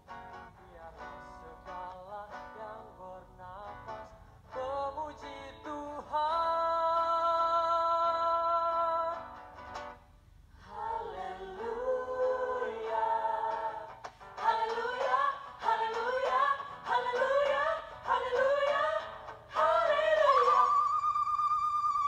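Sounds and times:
vocal trio singing in harmony: 0:10.6 - 0:22.0.

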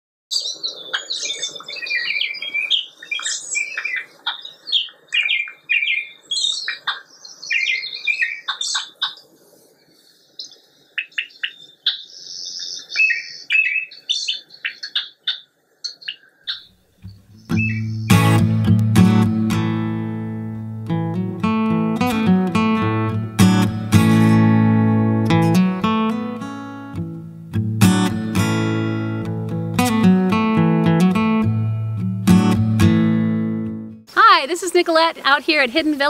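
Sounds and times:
bird chirping and warbling: 0:00.3 - 0:18.5.

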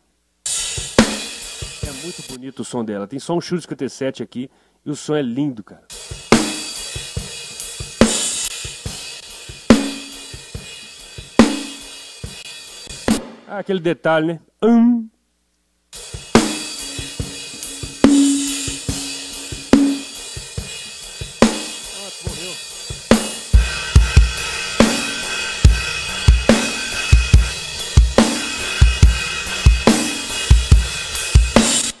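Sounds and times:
cymbals and hi-hat: 0:00.0 - 0:02.8, 0:05.9 - 0:13.5, 0:15.9 - 0:32.0
kick drum groove: 0:16.2 - 0:31.8.

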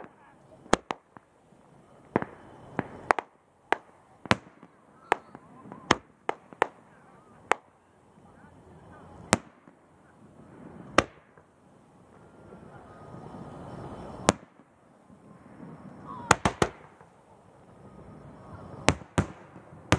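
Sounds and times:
firework rushing noise: 0:00.0 - 0:19.9
fireworks bangs: 0:00.0 - 0:19.9.

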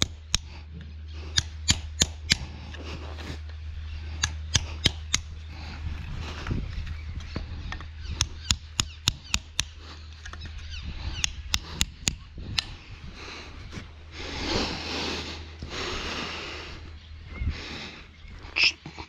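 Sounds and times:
sharp evenly spaced knocks: 0:01.3 - 0:02.5, 0:04.2 - 0:05.3, 0:08.2 - 0:09.8.

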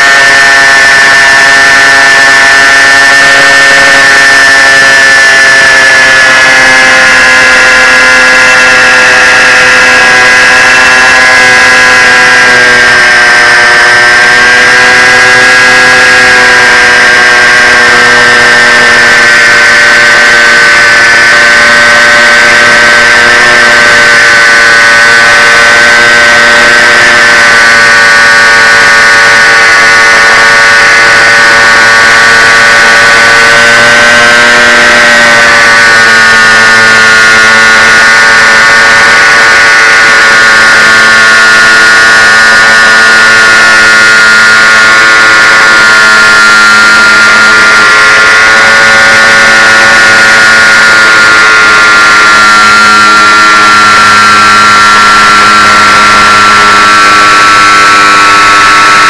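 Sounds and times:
propeller motor whining: 0:00.0 - 0:59.0.

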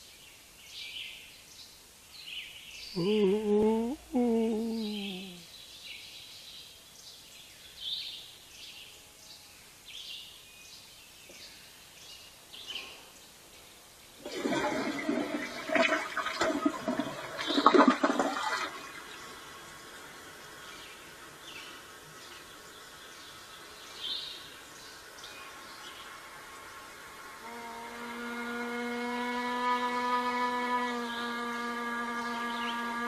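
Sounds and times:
faint high chirps: 0:02.9 - 0:05.5
loud rush of water-like noise: 0:14.2 - 0:28.0.

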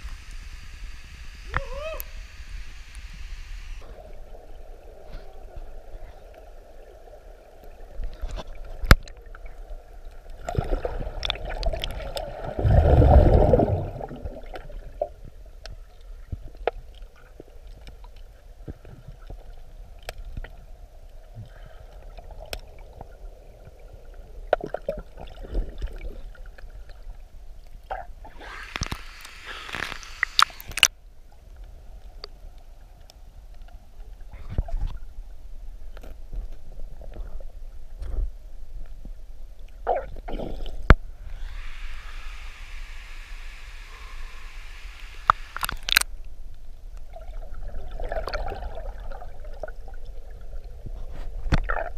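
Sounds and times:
muffled underwater water wash: 0:00.0 - 0:28.6, 0:30.2 - 0:51.9
splashy hissing burst: 0:28.3 - 0:30.9, 0:41.2 - 0:45.9.

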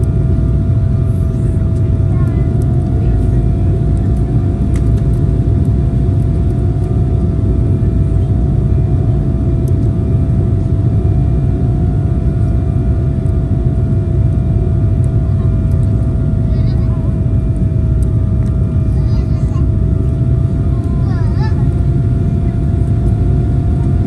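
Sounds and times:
constant hum: 0:00.0 - 0:24.0
engine and airflow rumble: 0:00.0 - 0:24.0.

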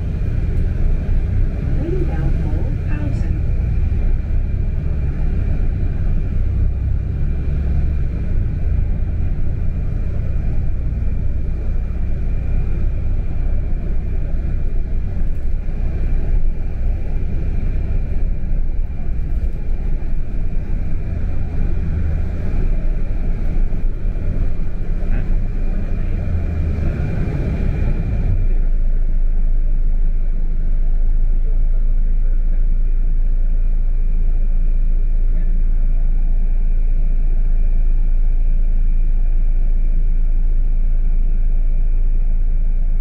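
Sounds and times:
engine and road rumble: 0:00.0 - 0:43.0.

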